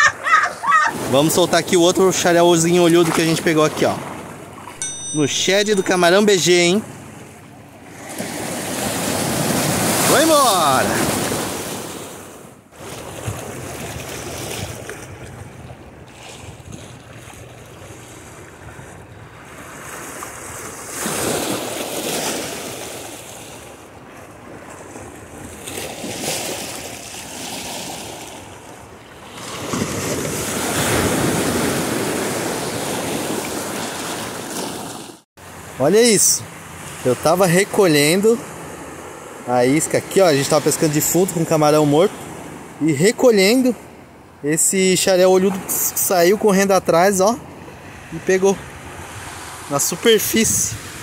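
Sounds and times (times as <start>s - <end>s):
surf breaking over rocks: 7.9s - 12.2s.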